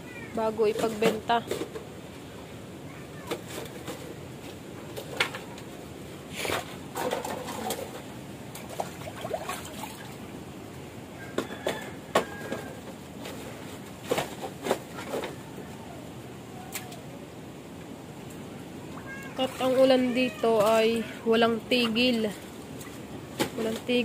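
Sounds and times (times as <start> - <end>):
plastic bottles clattering: 6.9 - 8.0.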